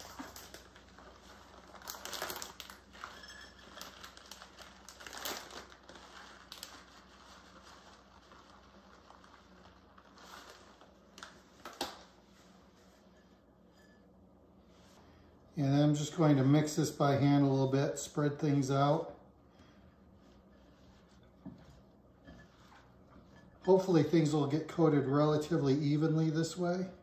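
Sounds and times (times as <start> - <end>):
plastic package crinkling: 0.0 - 12.2.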